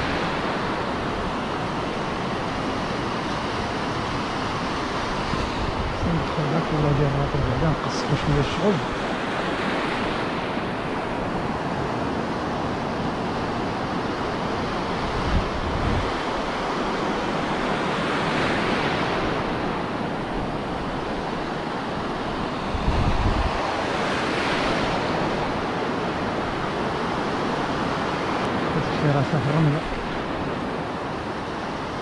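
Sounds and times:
wind buffeting microphone: 0.0 - 8.9, 9.9 - 17.8, 19.0 - 29.1
surf washing over sand: 0.0 - 32.0.

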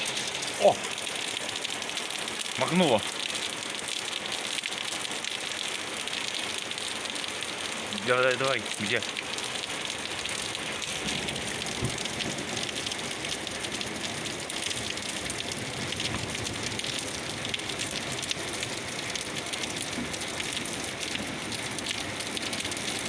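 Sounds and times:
heavy rain on leaves: 0.0 - 23.0.

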